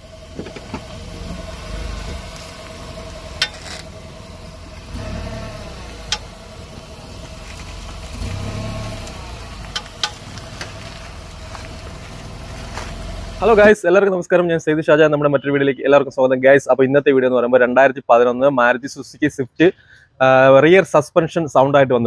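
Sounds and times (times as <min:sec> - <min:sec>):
car engine running: 0:00.0 - 0:13.8
sharp metallic clicks: 0:05.0 - 0:11.3.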